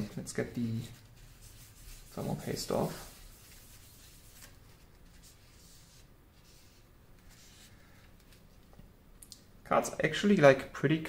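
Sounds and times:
faint rubbing and scratching: 0.0 - 8.6.

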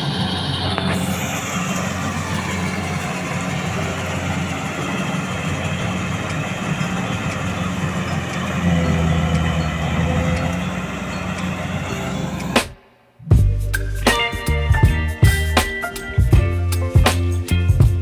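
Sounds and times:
combine harvester engine drone: 0.0 - 12.9.

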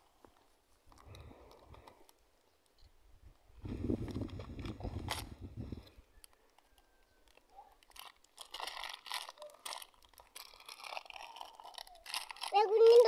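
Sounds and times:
hand scraping dry soil: 3.5 - 5.9, 7.8 - 13.0.

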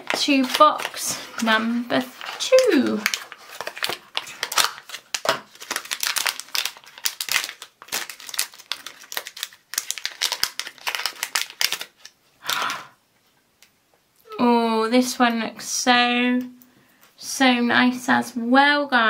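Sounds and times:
packaging crinkling: 0.0 - 12.8.

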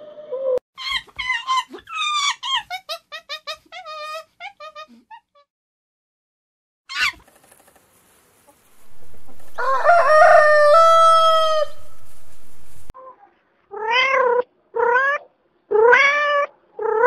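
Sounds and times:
rooster crowing: 8.8 - 12.7.

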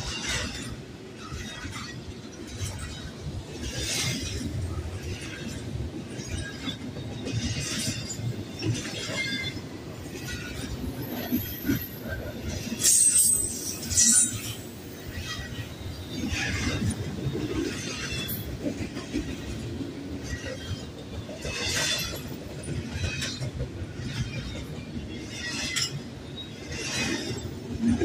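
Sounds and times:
train wheels rumbling on rails: 0.0 - 28.0
metallic squeals and clanks: 10.2 - 19.1.

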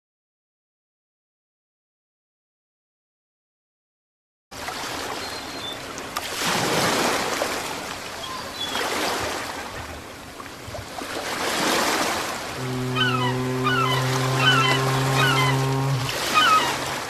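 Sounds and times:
ocean waves breaking on beach: 4.6 - 17.0.

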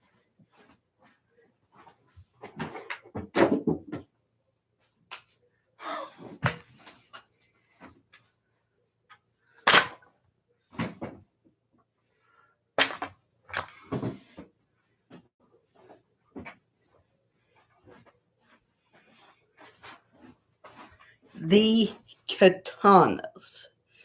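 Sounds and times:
objects knocking and clattering: 2.4 - 4.1, 12.8 - 14.4.

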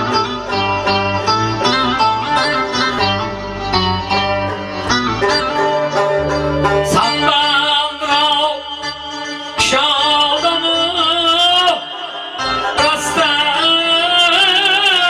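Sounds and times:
electronic keyboard folk melody: 0.0 - 15.0
man singing wavering vocal: 6.9 - 15.0.

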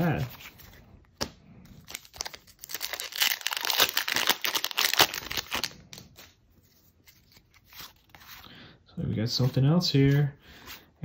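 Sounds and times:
foil wrapper crinkling: 1.9 - 5.7.

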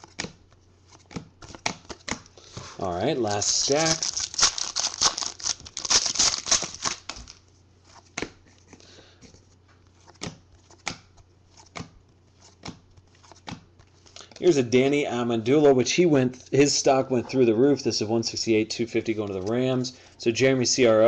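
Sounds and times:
card pack tearing and crinkling: 3.2 - 7.4.

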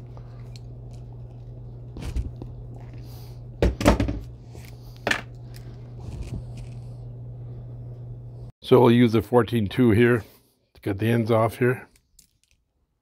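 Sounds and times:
low hum: 0.0 - 8.5.

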